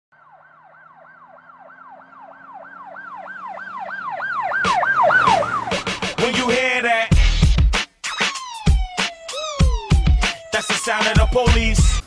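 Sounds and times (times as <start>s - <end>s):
siren rising and falling: 0.1s - 6.8s, 8.0s - 12.0s
scratch-like music hits: 7.1s - 9.1s.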